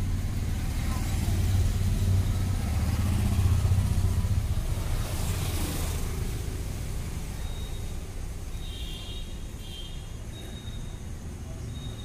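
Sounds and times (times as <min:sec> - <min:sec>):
passing vehicle engine rumble: 0:00.0 - 0:08.6.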